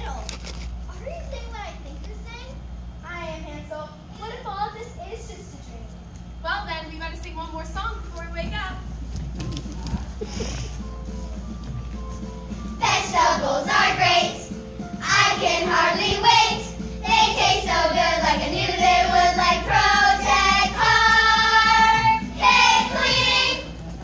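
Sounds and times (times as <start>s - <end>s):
children singing together: 12.8s - 23.8s.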